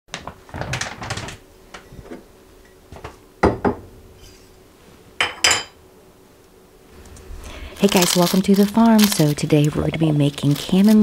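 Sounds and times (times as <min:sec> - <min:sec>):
paper bag rustling: 0:00.1 - 0:01.4, 0:07.3 - 0:11.0
objects knocking on counter: 0:03.0 - 0:03.8.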